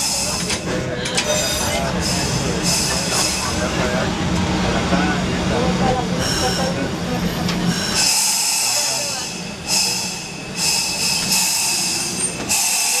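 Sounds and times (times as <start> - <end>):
trolley rumble: 0.0 - 13.0
air brakes hissing: 7.9 - 13.0.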